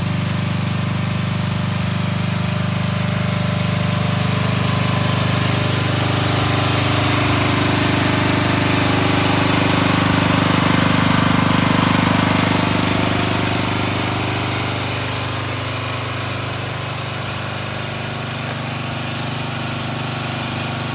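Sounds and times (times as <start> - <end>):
small excavator engine running: 0.0 - 20.9.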